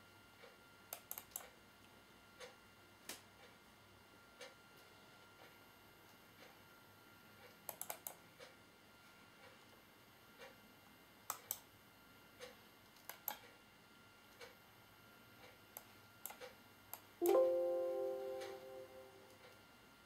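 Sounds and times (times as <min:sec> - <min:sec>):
short chime: 0:17.2 - 0:19.3.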